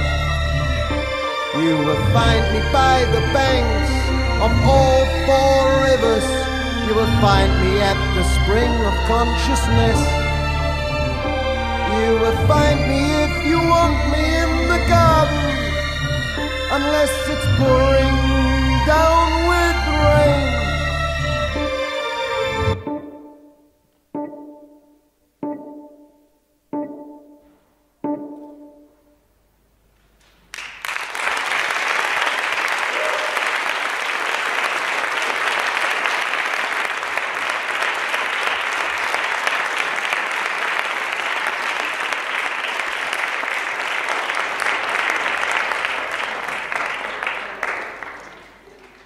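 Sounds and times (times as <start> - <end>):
dance music notes: 0.0 - 29.9
audience applause: 30.4 - 49.0.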